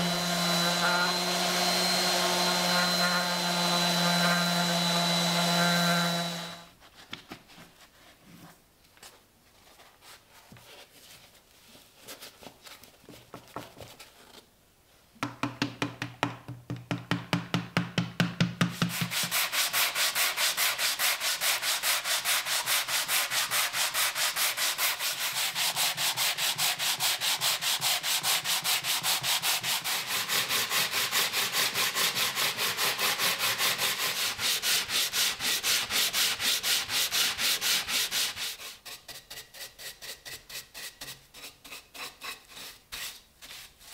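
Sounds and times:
sandpaper strokes on wood: 0.0 - 6.7, 18.8 - 43.9.

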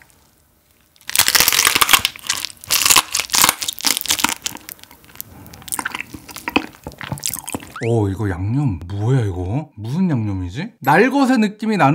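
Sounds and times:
crackling chewing: 0.7 - 7.8
crunching and crackling bite: 0.7 - 7.8.

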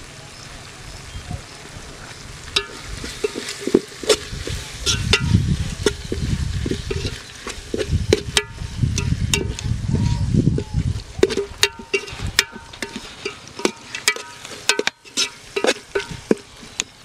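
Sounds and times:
light frying sizzle: 0.0 - 17.0
spoon clinking against pot: 2.6 - 4.2, 11.2 - 16.5
spoon stirring in metal pot: 2.6 - 9.6, 11.2 - 17.0.

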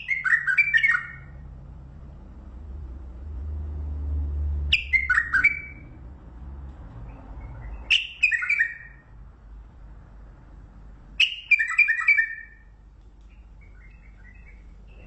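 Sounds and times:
bird singing falling notes: 4.7 - 5.9, 13.2 - 15.0.

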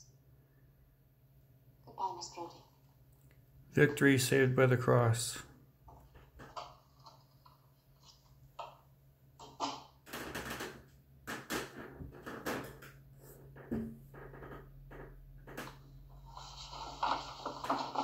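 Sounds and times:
knocks and clicks from speaker: 10.1 - 15.8.

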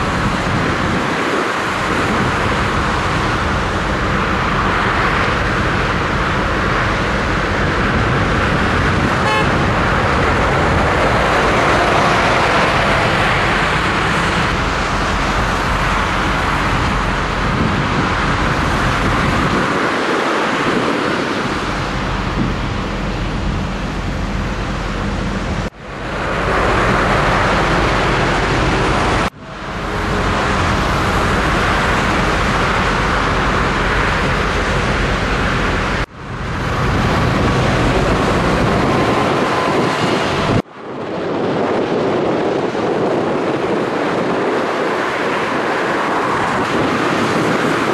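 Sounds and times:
motorway traffic passing at speed: 0.0 - 47.9.

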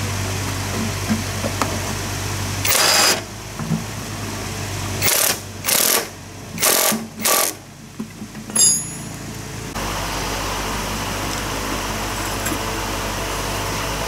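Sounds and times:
impact wrench hammering: 5.0 - 7.6, 8.5 - 9.2
metallic clink: 8.5 - 9.3.

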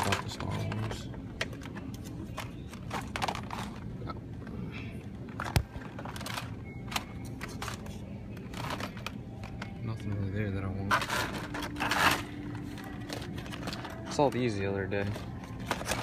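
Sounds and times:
plastic packs clicking on hooks: 8.4 - 16.0.

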